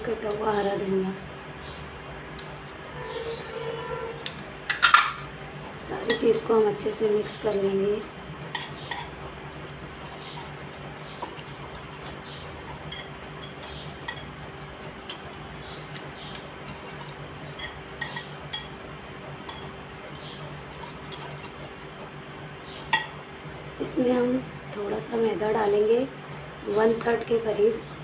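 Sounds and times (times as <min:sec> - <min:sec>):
steady low hum: 0:00.0 - 0:28.0
utensil beating egg in glass bowl: 0:08.9 - 0:18.7.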